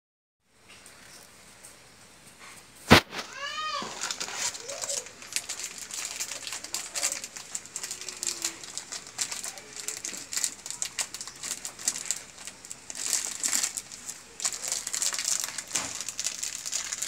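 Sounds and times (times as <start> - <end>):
handling clicks and rustles: 0.7 - 17.0
faint bird cooing: 4.6 - 12.3.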